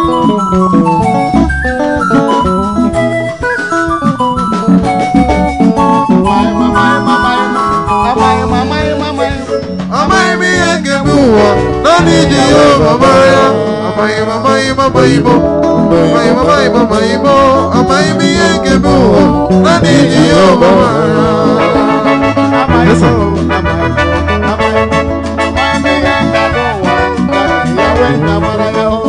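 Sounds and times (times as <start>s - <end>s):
bass: 0.0s - 29.0s
electric guitar playing: 0.0s - 29.0s
keyboard: 0.0s - 29.0s.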